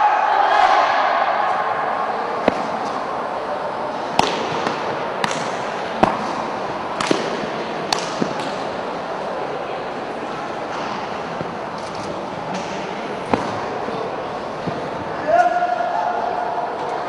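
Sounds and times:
hubbub of a large hall: 0.0 - 17.0.

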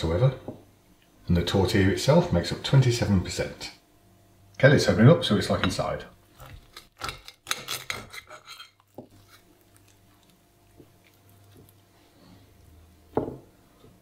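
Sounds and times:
faint low hum: 0.0 - 14.0
cutlery scraping ceramic plate: 7.0 - 9.4.

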